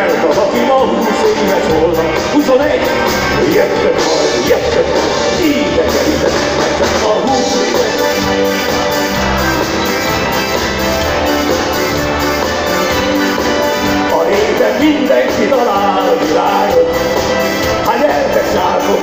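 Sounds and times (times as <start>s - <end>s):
man singing: 0.0s - 9.2s, 13.8s - 19.0s
accordion: 0.0s - 19.0s
bass guitar: 0.0s - 19.0s
drum kit: 0.0s - 19.0s
keyboard: 0.0s - 19.0s.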